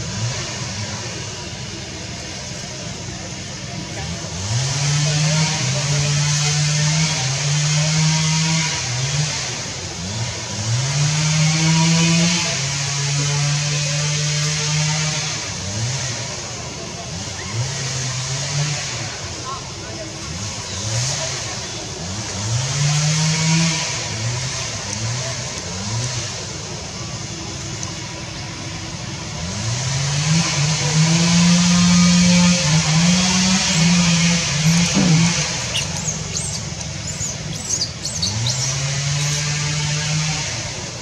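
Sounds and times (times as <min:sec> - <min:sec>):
engine revving: 0:00.0 - 0:19.3, 0:20.2 - 0:41.0
high chirps: 0:33.6 - 0:39.5.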